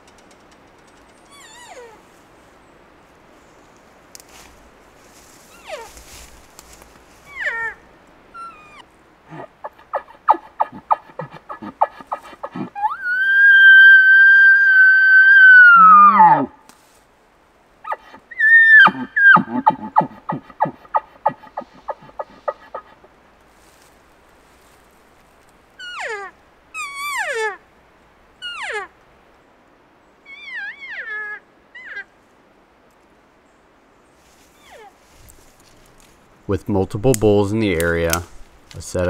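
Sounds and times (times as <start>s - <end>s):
cow elk mews: 8.4s - 16.6s, 17.8s - 23.1s, 28.4s - 29.0s
grunting chuckles: 9.3s - 12.8s.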